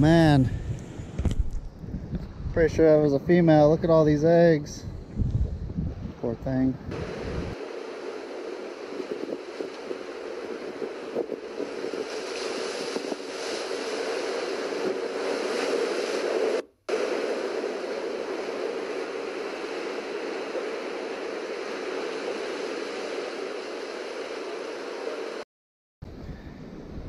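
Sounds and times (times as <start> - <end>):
wind: 0.0 - 25.4, 26.0 - 27.0
ocean surf breaking on rocks: 7.0 - 25.4.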